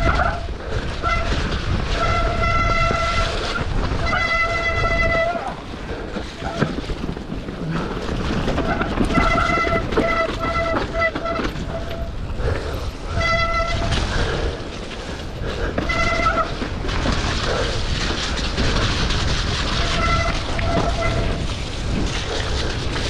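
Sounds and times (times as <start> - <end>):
trail noise: 0.0 - 23.0
wind: 0.0 - 23.0
bike disc brakes squealing: 8.6 - 12.2, 15.8 - 16.6, 18.3 - 22.9.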